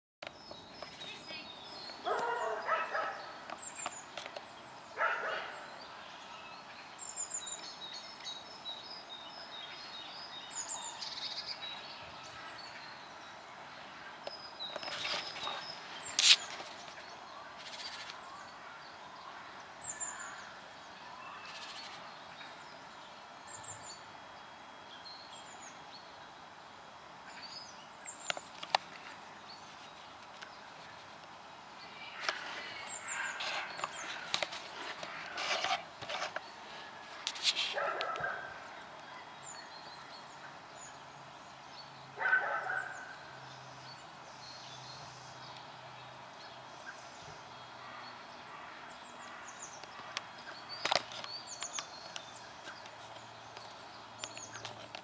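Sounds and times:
small birds chirping: 0.2 - 55.0.

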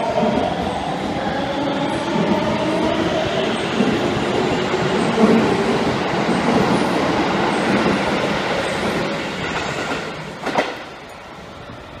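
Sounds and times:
train wheels clattering over rails: 3.6 - 11.2.

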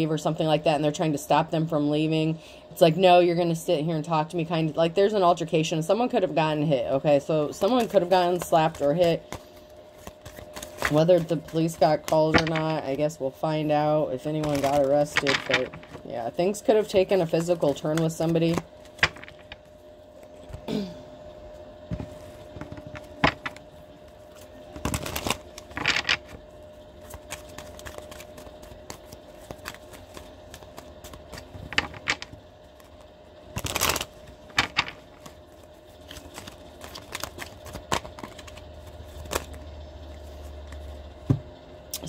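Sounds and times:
faint steady hum: 0.0 - 42.0
cards shuffling swishes: 7.6 - 12.6, 27.0 - 41.0
cards clicking and tapping on table: 17.8 - 19.5, 29.6 - 32.4.

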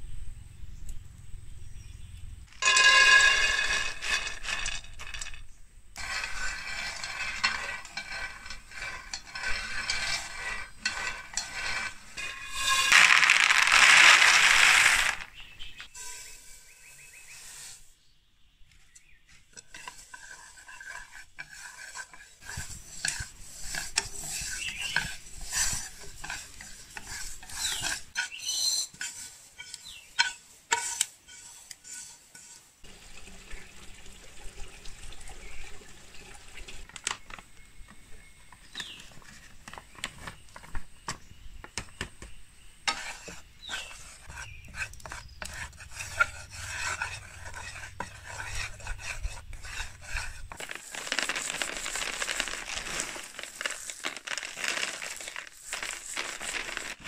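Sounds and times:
seeds rattling in pan: 2.5 - 17.9, 19.5 - 32.7, 42.8 - 57.0
spatula scraping dry pan: 2.6 - 5.4, 6.0 - 18.0, 18.7 - 32.9, 42.8 - 57.0
spoon stirring flour in pan: 2.6 - 5.4, 6.0 - 18.0, 18.7 - 32.9, 42.3 - 57.0.

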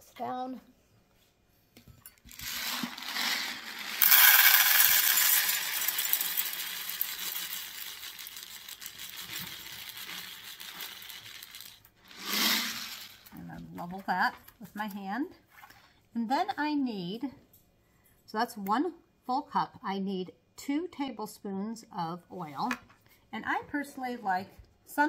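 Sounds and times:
popcorn kernels rattling into metal cup: 2.3 - 13.4.

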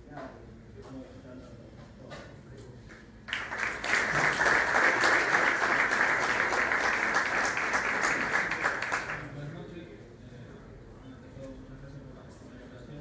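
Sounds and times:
crowd applauding: 3.3 - 9.4.

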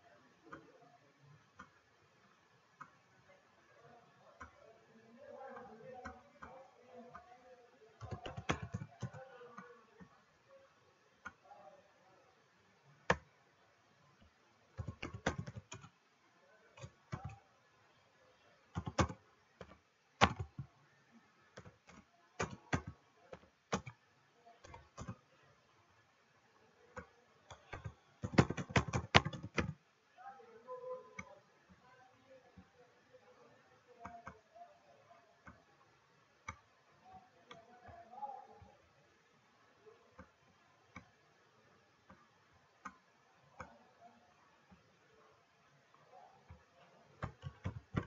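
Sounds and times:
computer keyboard typing: 8.0 - 9.3, 13.1 - 13.3, 14.2 - 16.0, 16.8 - 17.4, 18.7 - 20.7, 21.6 - 24.0, 24.6 - 25.2, 27.0 - 29.8, 47.2 - 48.0.

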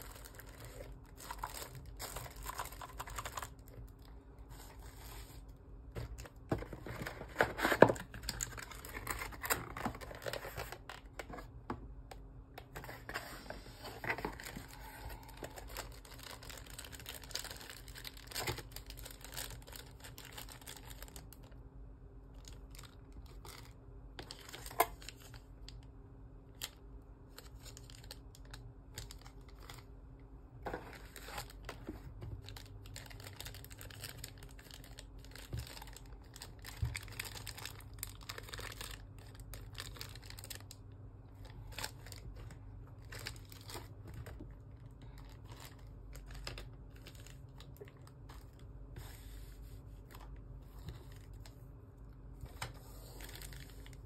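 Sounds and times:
plastic bags crinkling: 0.0 - 11.4, 14.0 - 21.5, 22.3 - 25.4, 26.6 - 30.0, 30.7 - 48.8, 52.6 - 54.0.

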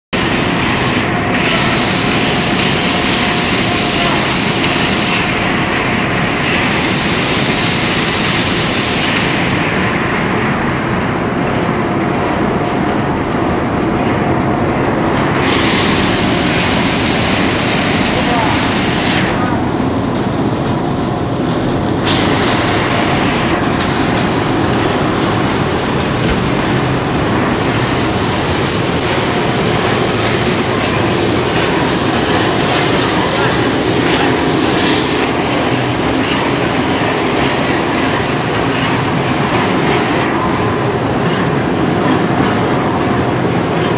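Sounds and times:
food extruder machine noise: 15.2 - 19.6, 21.9 - 43.9.

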